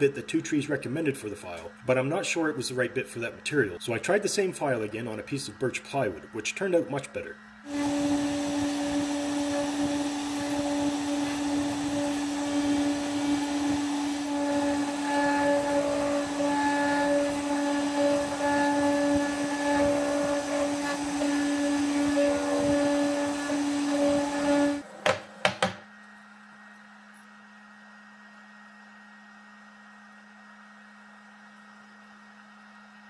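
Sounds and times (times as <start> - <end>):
router spindle motor whine: 4.8 - 25.8.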